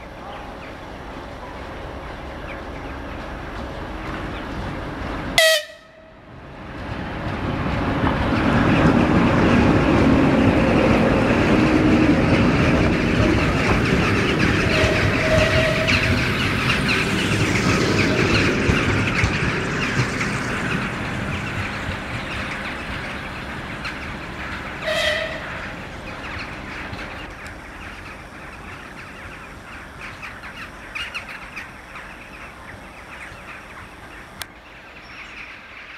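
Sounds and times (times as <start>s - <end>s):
train wheels on rails: 0.0s - 35.9s
high-pitched squeal: 13.1s - 21.6s.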